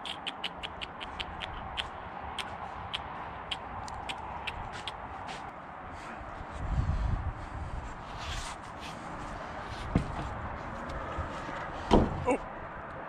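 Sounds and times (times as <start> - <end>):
scuffs and knocks on wood: 8.3 - 12.2.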